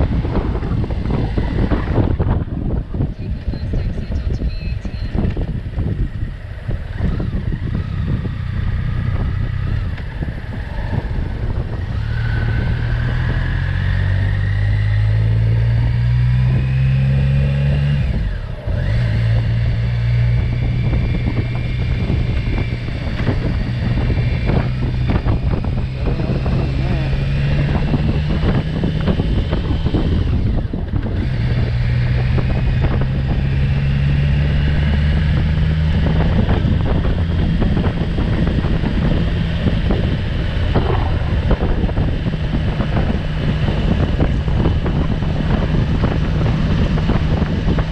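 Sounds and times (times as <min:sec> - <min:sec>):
motorcycle engine accelerating: 0:00.0 - 0:47.9
wind buffeting microphone: 0:00.0 - 0:47.9.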